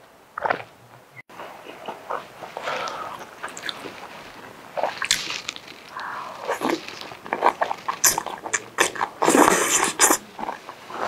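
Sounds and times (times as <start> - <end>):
noodles being slurped: 1.5 - 11.0
wet mouth clicks: 1.7 - 3.9, 4.8 - 10.7.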